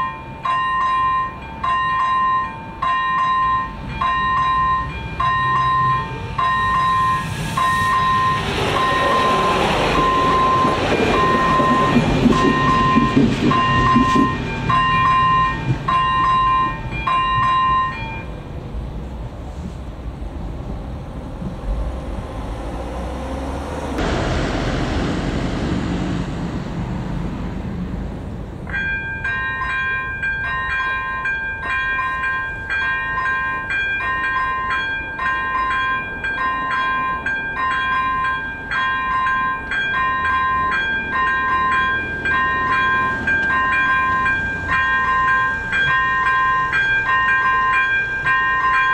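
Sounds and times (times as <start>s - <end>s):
electronic warning bell dinging: 0.0s - 18.4s, 28.7s - 48.9s.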